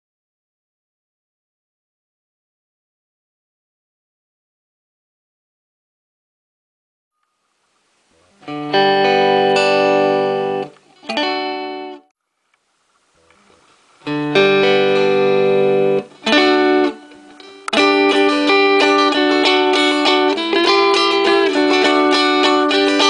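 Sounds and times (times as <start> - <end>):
electric guitar chords strummed: 8.2 - 12.1, 14.0 - 23.0.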